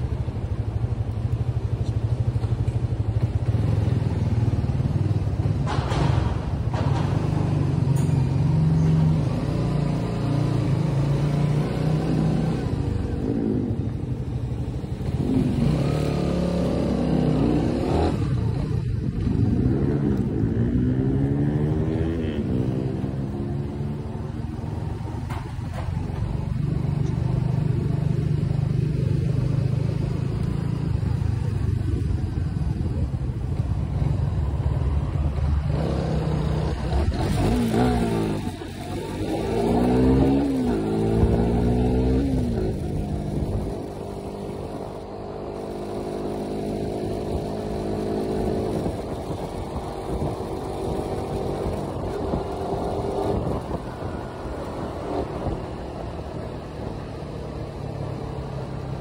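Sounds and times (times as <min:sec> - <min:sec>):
motorcycle engine accelerating: 0:02.1 - 0:59.0
wind buffeting microphone: 0:30.8 - 0:44.5, 0:47.0 - 0:57.2.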